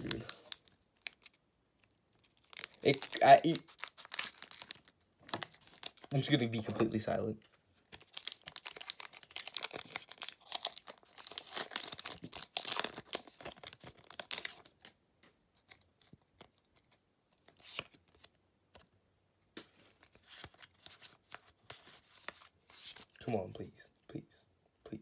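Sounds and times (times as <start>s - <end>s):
foil wrapper tearing and crinkling: 0.0s - 6.2s, 7.9s - 14.9s
cards rustling and clicking: 7.4s - 18.9s, 19.6s - 23.4s.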